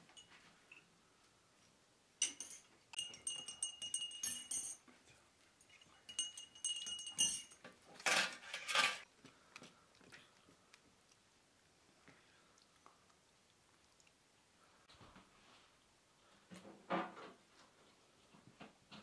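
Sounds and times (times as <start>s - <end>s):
spoons clinking against glasses: 2.2s - 4.9s, 5.7s - 9.0s.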